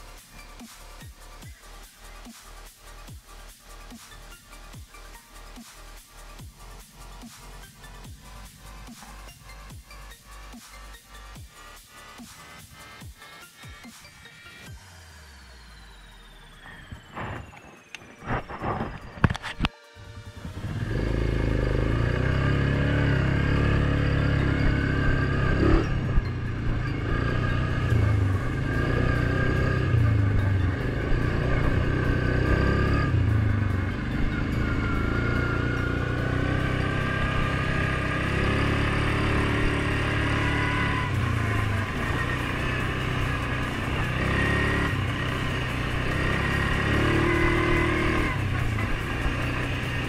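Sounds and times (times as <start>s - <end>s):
high whine: 14.8s - 50.0s
atv engine revving: 18.3s - 50.0s.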